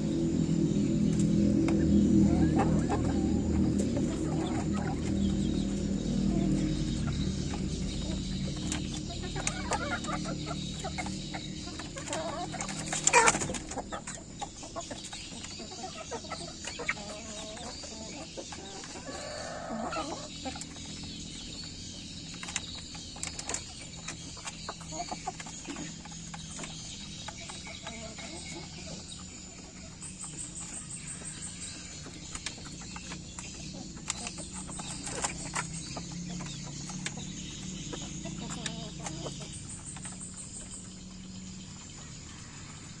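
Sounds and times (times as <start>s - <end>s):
chickens clucking softly: 0.3s - 43.0s.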